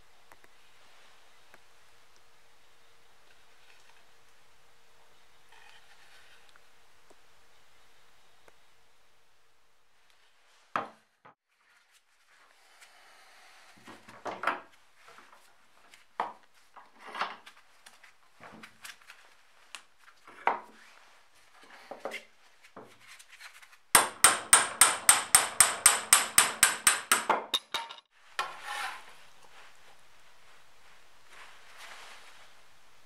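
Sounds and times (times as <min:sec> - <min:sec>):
hammer striking metal: 0:24.0 - 0:28.1
axe head knocks and clunks: 0:27.2 - 0:28.1
metal scrape: 0:28.4 - 0:29.2.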